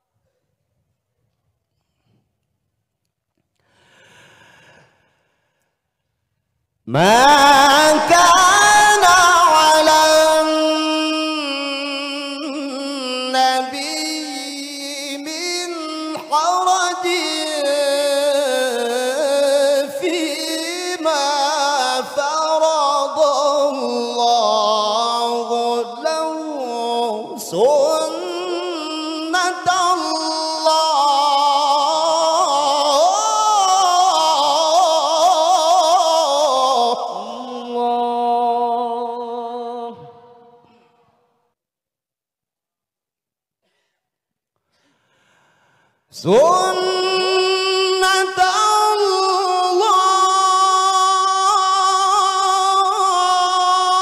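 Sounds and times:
man chanting into a microphone: 0:06.9 - 0:40.8, 0:46.1 - 0:54.0.

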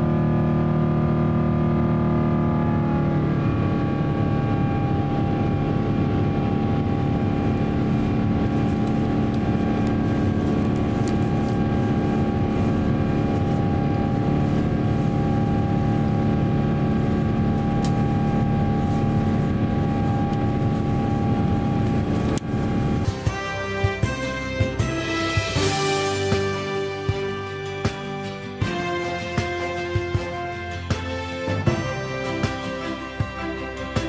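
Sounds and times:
deep rumble: 0:00.0 - 0:23.3
jet engines droning: 0:00.0 - 0:34.0
steady tones: 0:02.0 - 0:26.3
airflow: 0:02.5 - 0:23.4.

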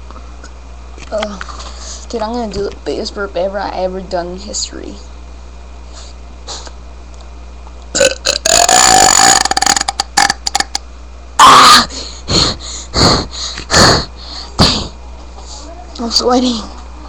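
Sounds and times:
man burping loudly: 0:08.0 - 0:10.8.

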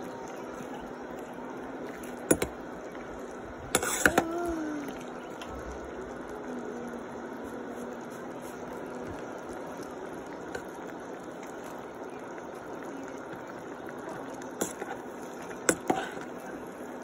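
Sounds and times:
pot of broth simmering: 0:00.0 - 0:17.0.

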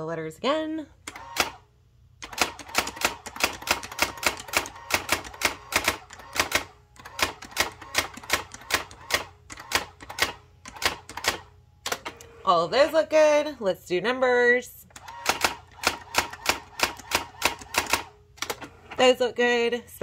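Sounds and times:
typewriter print hammer clacks: 0:02.2 - 0:12.1, 0:15.0 - 0:18.6.

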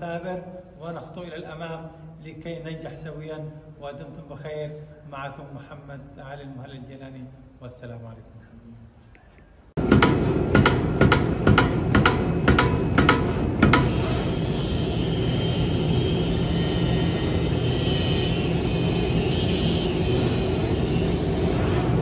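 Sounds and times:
fabric cutting machine drone: 0:12.9 - 0:22.0
faint high whine: 0:14.0 - 0:22.0.

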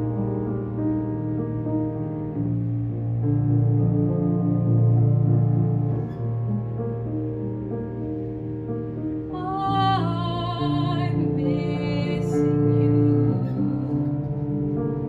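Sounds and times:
piano chords: 0:00.0 - 0:15.0
woman singing operatically: 0:09.4 - 0:14.1.

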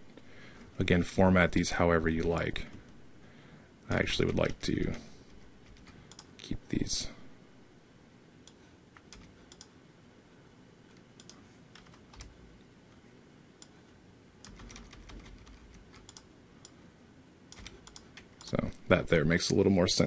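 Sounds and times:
keyboard keystrokes: 0:14.4 - 0:16.3, 0:17.5 - 0:18.6.

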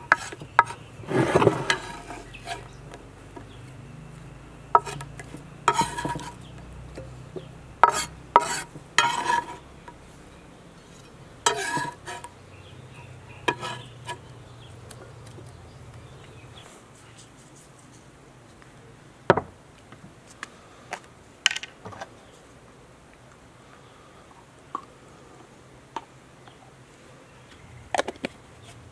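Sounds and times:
blade scraping pieces into bowl: 0:00.0 - 0:02.7, 0:04.8 - 0:05.1, 0:05.7 - 0:06.5, 0:07.8 - 0:09.6, 0:10.8 - 0:12.3, 0:13.5 - 0:14.3
knife chopping on wooden board: 0:04.8 - 0:05.1, 0:05.7 - 0:06.4, 0:07.8 - 0:09.6.

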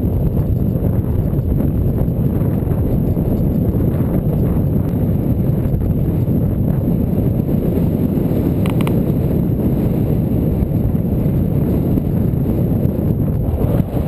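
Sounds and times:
wind buffeting microphone: 0:00.0 - 0:14.0
high ticks: 0:08.6 - 0:09.0.

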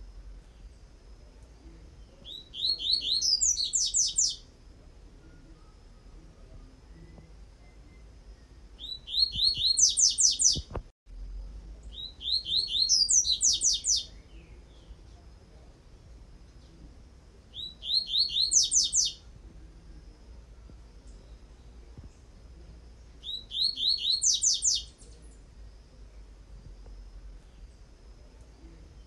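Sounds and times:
bird singing high notes: 0:17.6 - 0:19.2.

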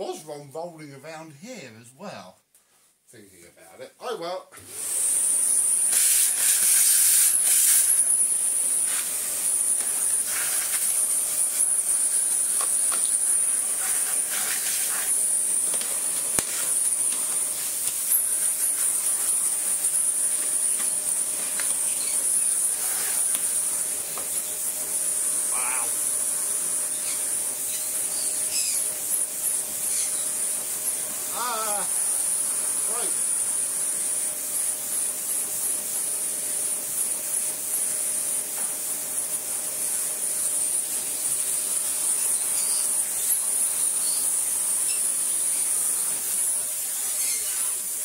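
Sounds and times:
vacuum cleaner running: 0:04.6 - 0:48.0.

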